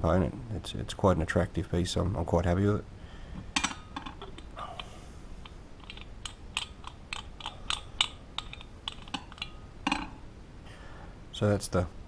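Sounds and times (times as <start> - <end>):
small brass parts clicking: 3.6 - 10.2.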